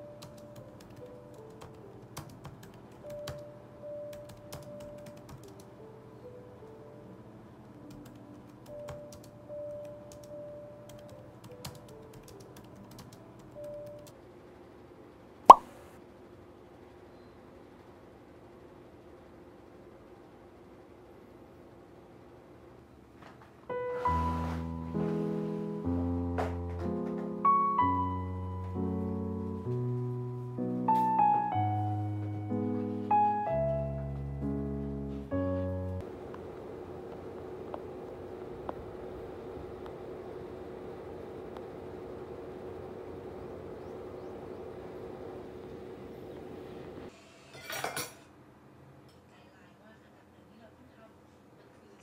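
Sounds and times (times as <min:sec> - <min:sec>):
faint background music: 0:00.0 - 0:14.2, 0:23.6 - 0:38.4
soft piano chords: 0:00.0 - 0:14.2, 0:23.6 - 0:47.1.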